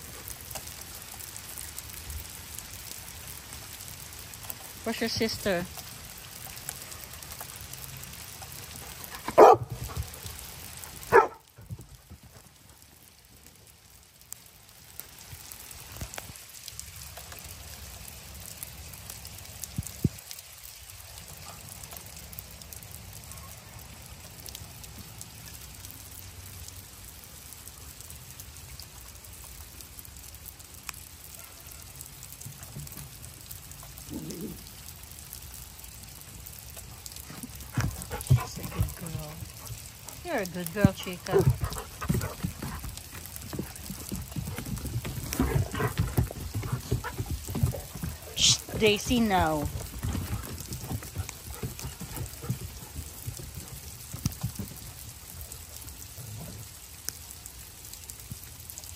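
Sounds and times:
hail pattering on wood and grass: 0:00.0 - 0:58.9
dog barking: 0:09.3 - 0:09.8, 0:11.1 - 0:11.5, 0:31.3 - 0:31.9.

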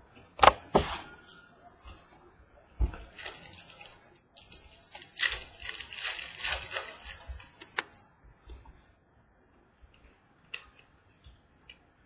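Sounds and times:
wrapper and cards rustling: 0:03.0 - 0:07.8.

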